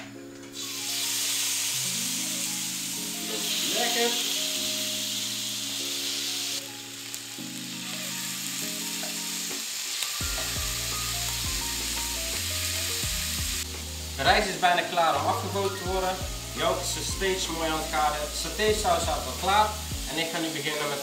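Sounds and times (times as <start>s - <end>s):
background music with chords: 0.0s - 21.0s
meat sizzling in a grill pan: 0.6s - 21.0s
low bass line: 10.2s - 14.4s, 15.2s - 17.6s, 18.2s - 20.1s.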